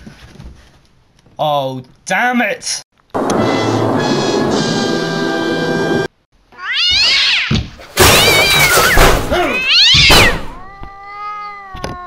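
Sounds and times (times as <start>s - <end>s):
music: 3.2s - 6.1s
cat yowling meows: 6.5s - 12.0s.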